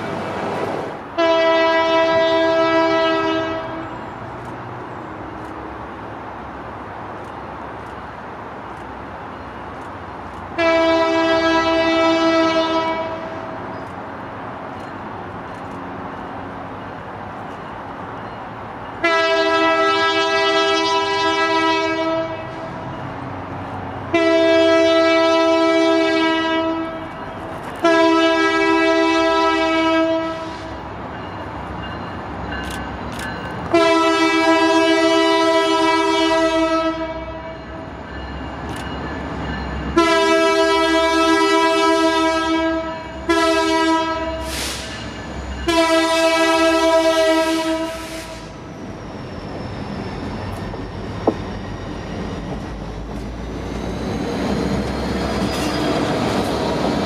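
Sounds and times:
locomotive air horn blasts: 0:01.1 - 0:04.0, 0:10.5 - 0:13.6, 0:19.0 - 0:22.8, 0:24.1 - 0:27.2, 0:27.8 - 0:30.8, 0:33.7 - 0:37.8, 0:39.9 - 0:45.0, 0:45.6 - 0:48.6.

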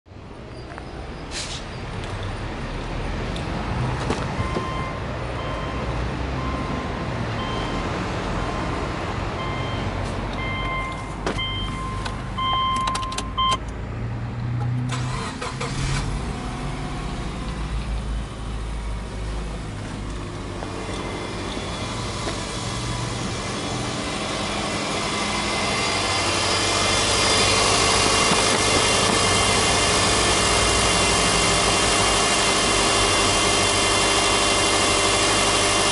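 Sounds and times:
car warning chime beeping: 0:04.4 - 0:07.8, 0:09.4 - 0:13.6
car engine cranking and starting: 0:14.7 - 0:35.9
car engine idling: 0:14.9 - 0:35.9.

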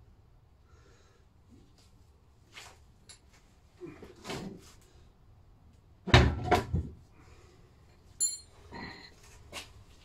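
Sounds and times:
metallic clink and ring: 0:08.2 - 0:08.6.

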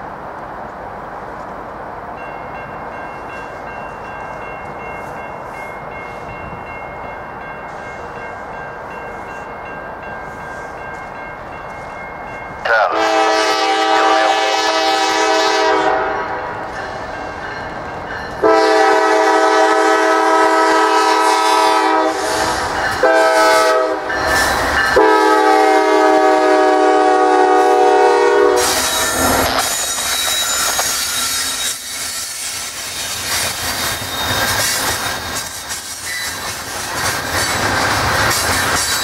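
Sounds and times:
train wheels rolling on rails: 0:00.0 - 0:39.0
locomotive air horn: 0:12.8 - 0:16.5, 0:18.4 - 0:24.1, 0:25.0 - 0:29.8.

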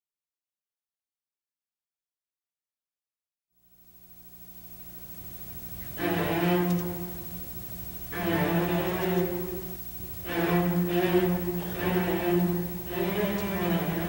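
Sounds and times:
orchestra playing sustained chords: 0:05.8 - 0:14.0.

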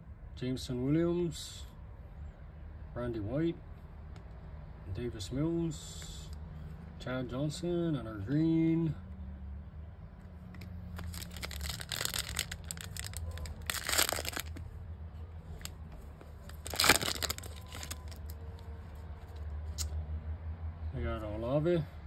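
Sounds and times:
foil wrapper crinkling and tearing: 0:11.0 - 0:14.6, 0:16.5 - 0:18.4.

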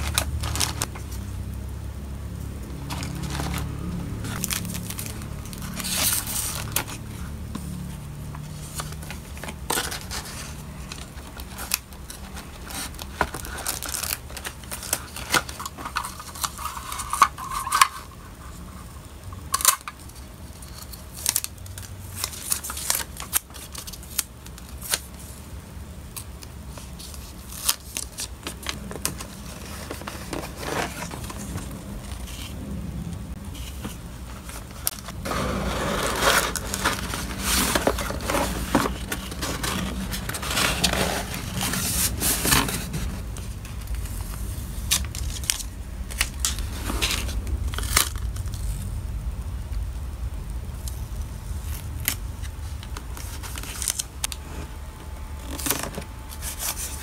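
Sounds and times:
paper rustling: 0:00.0 - 0:01.3, 0:02.8 - 0:18.8, 0:26.7 - 0:32.6, 0:33.3 - 0:48.8, 0:51.6 - 0:54.8, 0:55.4 - 0:57.0
plastic wrap crinkling: 0:00.0 - 0:01.3, 0:02.7 - 0:18.7, 0:33.3 - 0:57.0
low steady hum: 0:00.0 - 0:57.0.

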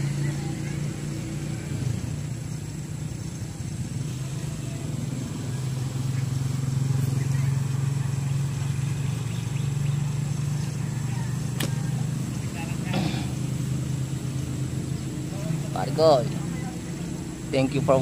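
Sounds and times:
engine humming: 0:00.0 - 0:18.0.

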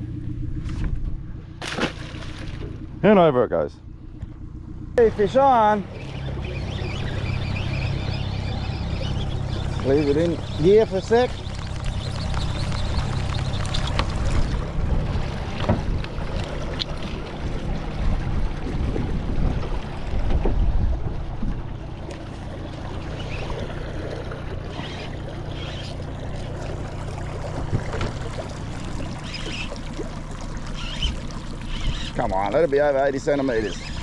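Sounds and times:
water washing against boat hull: 0:01.6 - 0:03.0, 0:05.0 - 0:34.0
wind on microphone: 0:05.9 - 0:21.8.

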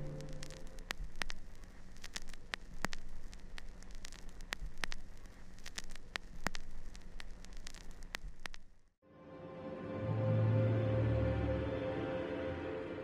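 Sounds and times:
faint hiss: 0:00.0 - 0:08.8
crackling clicks and pops: 0:00.0 - 0:09.0
low steady hum: 0:00.0 - 0:09.0.

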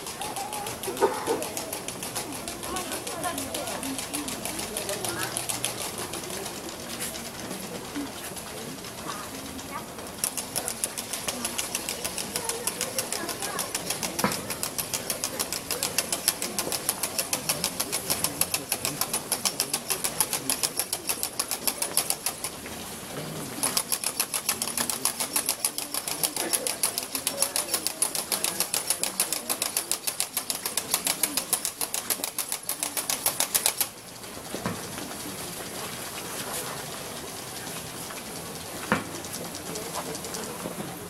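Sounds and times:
rapid sharp percussion clacks: 0:00.0 - 0:41.0.

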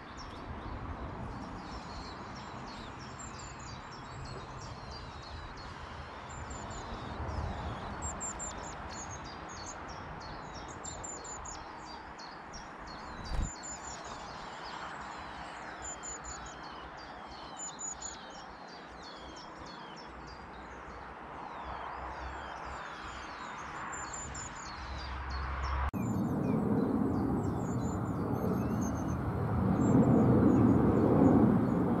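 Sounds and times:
wind rumbling on microphone: 0:00.0 - 0:14.6, 0:24.0 - 0:32.0.

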